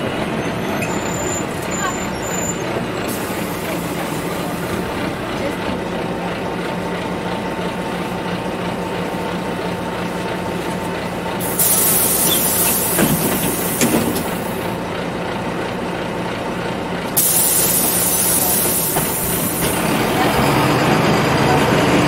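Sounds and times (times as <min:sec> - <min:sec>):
bus ride drone: 0:00.0 - 0:22.0
loud air hiss: 0:03.1 - 0:04.8, 0:11.4 - 0:14.6, 0:17.2 - 0:19.8.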